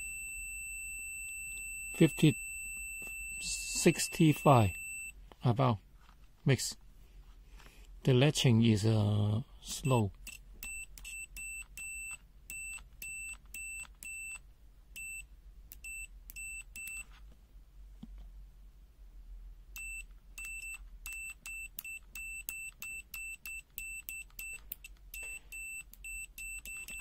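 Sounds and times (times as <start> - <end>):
short high-pitched beeps: 0.0 - 5.2, 9.8 - 14.4, 19.8 - 27.0.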